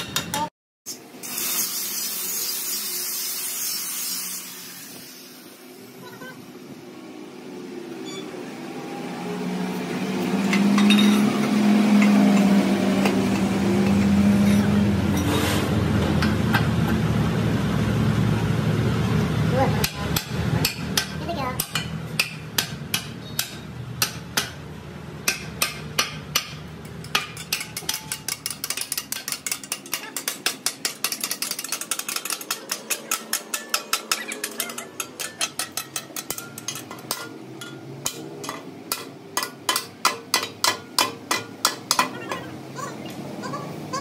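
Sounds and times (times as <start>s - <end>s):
hammers clanking on steel: 25.2s - 42.5s.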